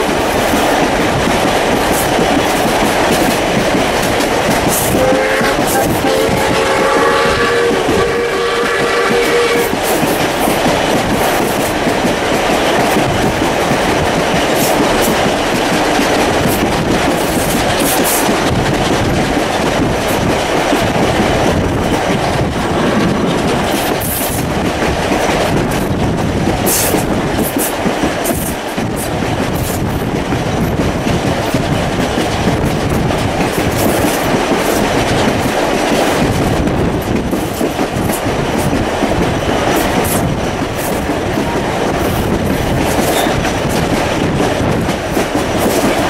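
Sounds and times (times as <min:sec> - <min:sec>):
carriages running on track: 0:00.0 - 0:46.0
steam locomotive whistle chord: 0:05.0 - 0:09.7.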